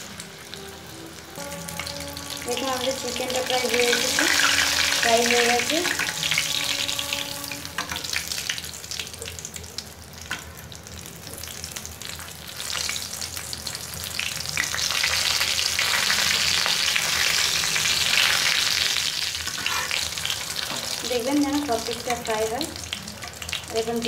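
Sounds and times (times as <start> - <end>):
chicken sizzling in hot oil: 0.0 - 24.0
metal spatula scraping pan: 2.0 - 8.7, 19.4 - 21.0.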